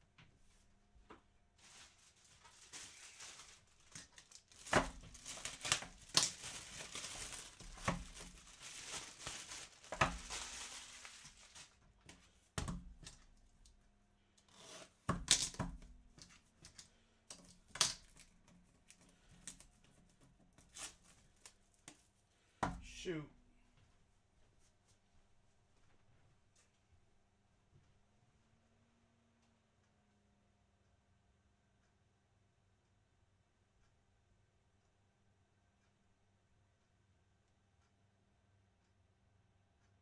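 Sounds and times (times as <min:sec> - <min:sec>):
packaging tearing and crinkling: 0:01.6 - 0:11.8, 0:14.6 - 0:18.3.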